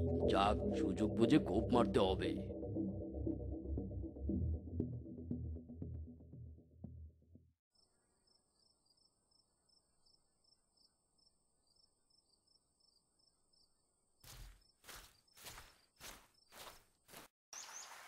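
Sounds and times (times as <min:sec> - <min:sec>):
background music: 0:00.0 - 0:07.5
crickets chirping: 0:07.8 - 0:16.8
heavy footsteps: 0:14.3 - 0:17.3.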